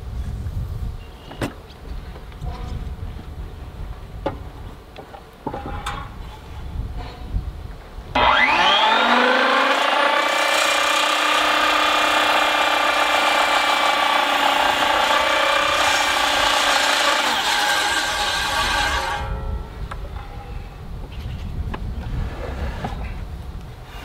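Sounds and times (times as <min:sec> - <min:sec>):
circular saw cutting wood: 0:08.2 - 0:19.5.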